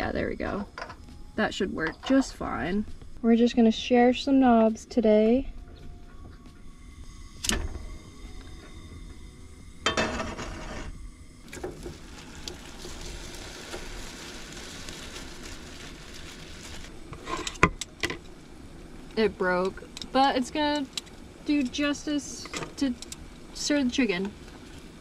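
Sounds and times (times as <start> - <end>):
chicken sizzling in frying pan: 11.5 - 17.0.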